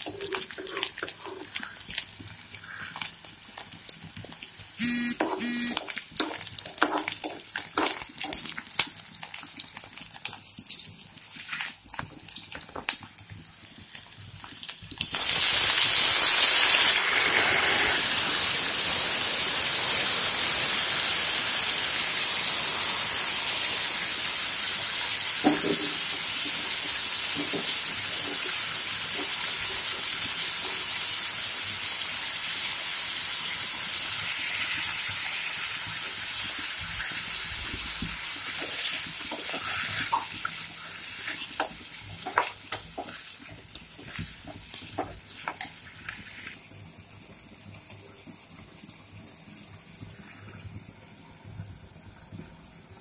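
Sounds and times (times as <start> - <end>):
food frying in oil: 0.0 - 53.0
loud hiss of food into hot oil: 15.0 - 41.6.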